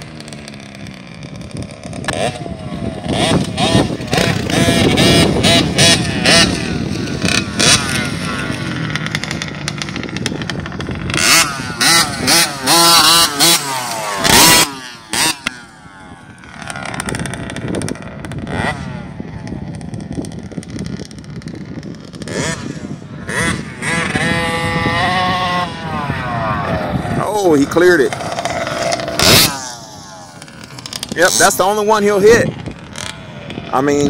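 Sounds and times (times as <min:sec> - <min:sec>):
dirt bike engine revving: 0:00.0 - 0:34.0
loud rushing bursts: 0:23.2 - 0:34.0.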